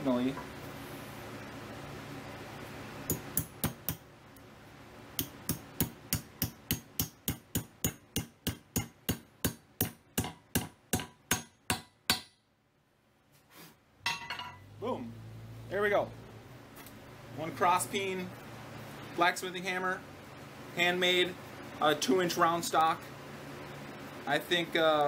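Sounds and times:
hammer striking metal wedge: 0:03.1 - 0:04.0, 0:05.2 - 0:12.4.

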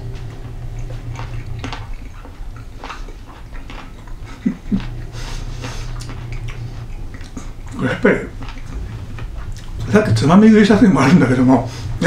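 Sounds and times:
person chewing: 0:00.0 - 0:09.9
steady low hum: 0:00.0 - 0:12.0
mouth clicks and smacks: 0:00.7 - 0:09.8.

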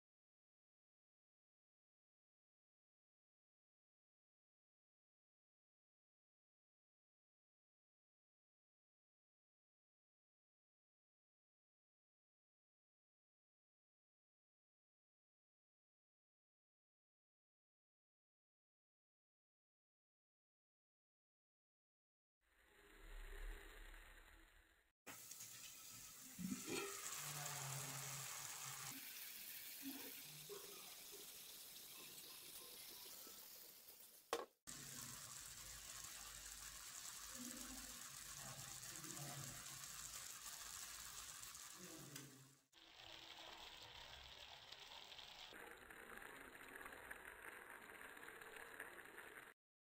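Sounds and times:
sauce sizzling in a clay pot: 0:25.1 - 0:49.6.

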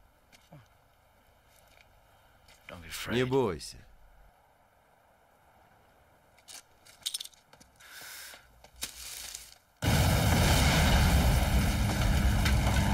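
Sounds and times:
large explosion blast: 0:09.8 - 0:12.9
roar of fire and debris: 0:09.8 - 0:12.9.

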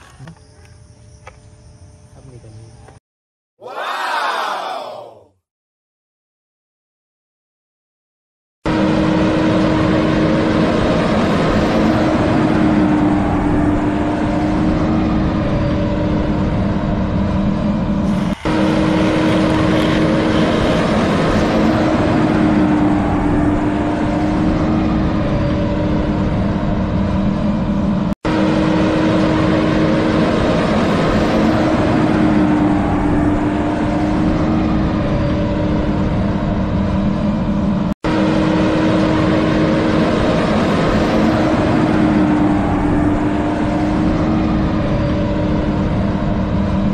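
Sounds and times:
vehicle engine humming: 0:08.7 - 0:46.9.

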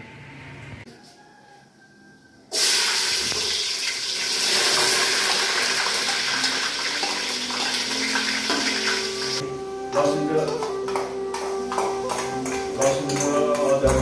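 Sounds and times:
onions sizzling in hot oil: 0:02.6 - 0:09.4.

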